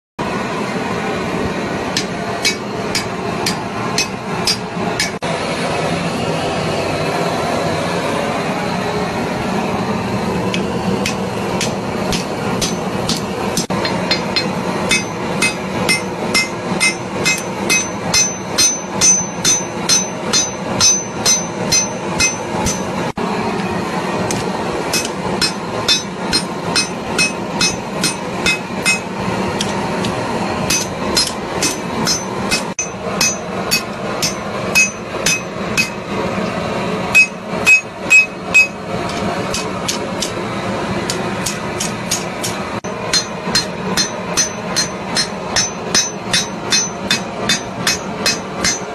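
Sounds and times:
hammer striking steel on anvil: 0:01.9 - 0:05.2, 0:10.5 - 0:23.1, 0:24.3 - 0:40.4, 0:41.0 - 0:48.9.

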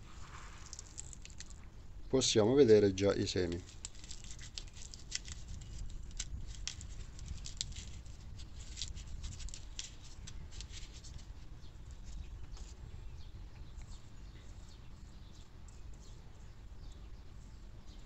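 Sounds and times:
dry skin crackling: 0:00.0 - 0:01.8, 0:02.9 - 0:12.8
low steady rumble: 0:00.0 - 0:18.0.

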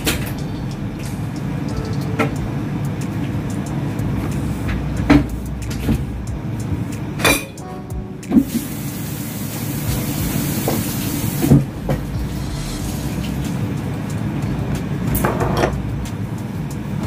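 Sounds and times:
steady low hum: 0:00.0 - 0:08.5, 0:09.9 - 0:17.0
hiss: 0:08.4 - 0:11.6.

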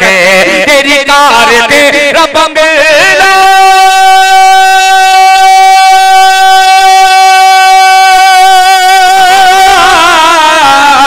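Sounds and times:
man chanting sung note: 0:00.0 - 0:11.0.

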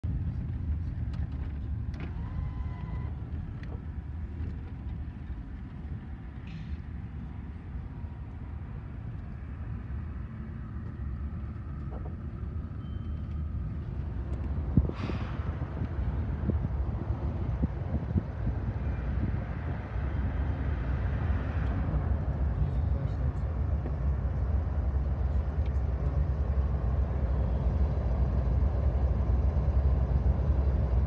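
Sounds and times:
car engine rumble: 0:00.0 - 0:31.0
rushing noise: 0:13.9 - 0:22.5.

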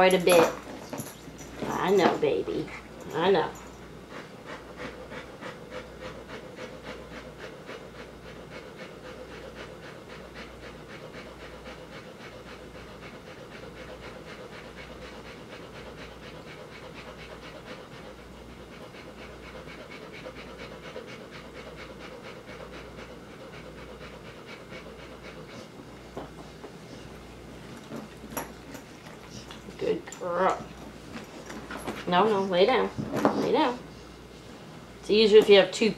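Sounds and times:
dog panting: 0:00.0 - 0:35.6.

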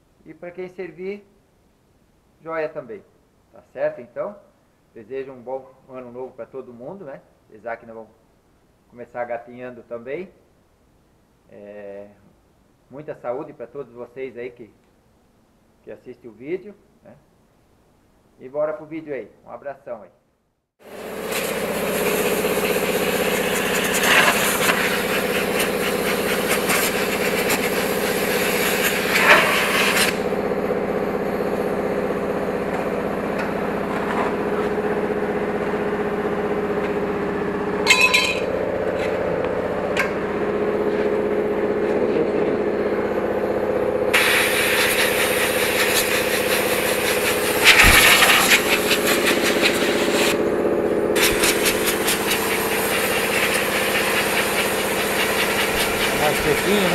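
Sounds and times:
machine humming: 0:20.9 - 0:56.9.

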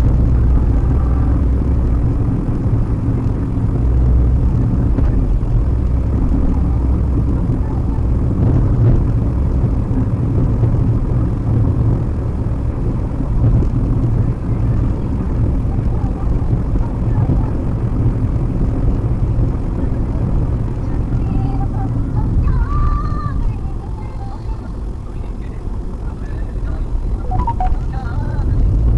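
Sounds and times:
car engine at cruising speed: 0:00.0 - 0:28.9
tyre road noise: 0:00.0 - 0:28.9.

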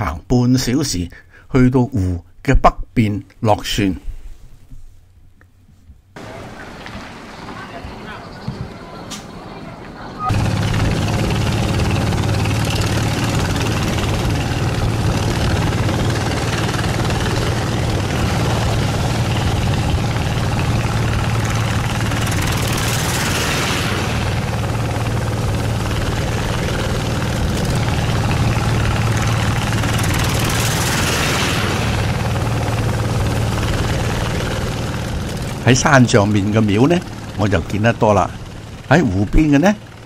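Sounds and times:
motorboat engine humming: 0:05.0 - 0:40.0
water rushing hiss: 0:06.2 - 0:08.2, 0:10.3 - 0:37.6.

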